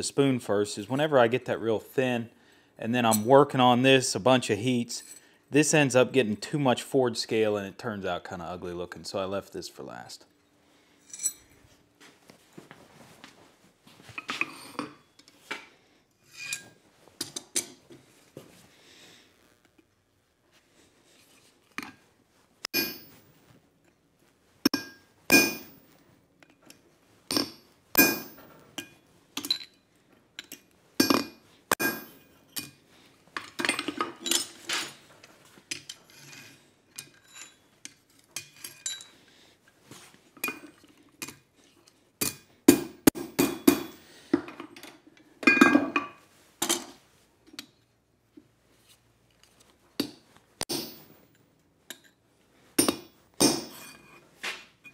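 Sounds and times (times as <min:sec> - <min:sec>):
hammer striking steel punch: 0:22.7 - 0:23.1, 0:24.7 - 0:25.8, 0:27.3 - 0:28.4, 0:31.0 - 0:32.2, 0:42.2 - 0:44.0, 0:50.7 - 0:51.1, 0:52.8 - 0:53.8.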